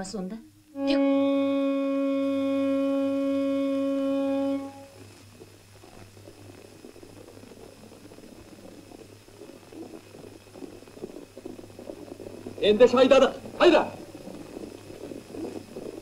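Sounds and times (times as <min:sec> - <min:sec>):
faint low rustle: 0:00.6 - 0:16.0
long steady musical note: 0:00.8 - 0:05.0.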